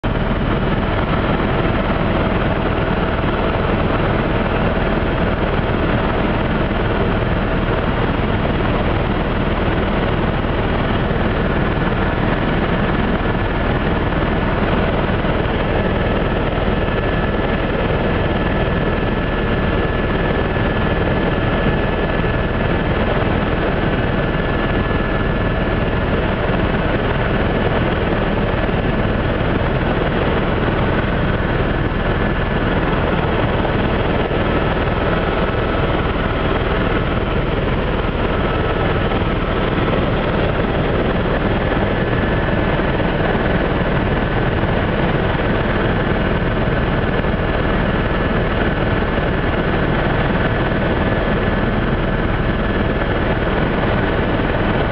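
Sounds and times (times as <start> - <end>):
faint steady whines: 0.0 - 54.9
helicopter engine and rotor drone: 0.0 - 54.9.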